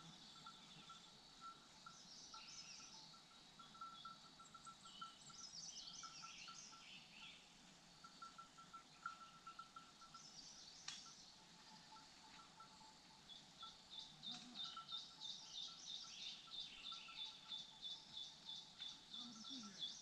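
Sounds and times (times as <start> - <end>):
distant birds twittering: 0.0 - 20.0.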